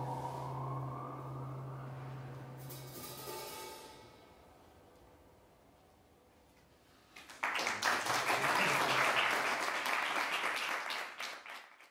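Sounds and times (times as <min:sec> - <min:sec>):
audience applauding: 0:07.2 - 0:11.9.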